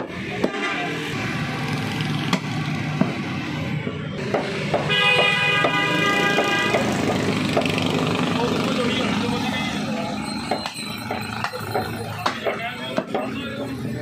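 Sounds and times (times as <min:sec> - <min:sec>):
steady traffic noise: 0:00.0 - 0:14.0
vehicle horn: 0:00.4 - 0:01.1, 0:04.9 - 0:07.0.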